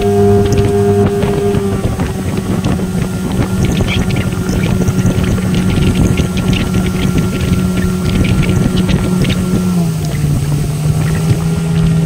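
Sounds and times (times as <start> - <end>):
outboard motor running: 0.0 - 12.0
water rushing past hull: 0.0 - 12.0.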